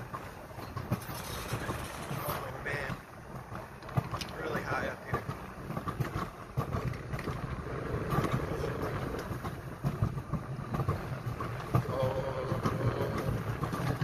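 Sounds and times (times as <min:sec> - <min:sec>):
coaster wheels rumbling on rail: 0:00.0 - 0:14.0
wind buffeting microphone: 0:00.0 - 0:14.0.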